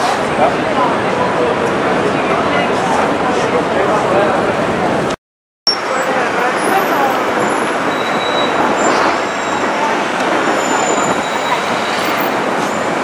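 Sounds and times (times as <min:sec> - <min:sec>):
faint high squeals: 0:07.5 - 0:13.0.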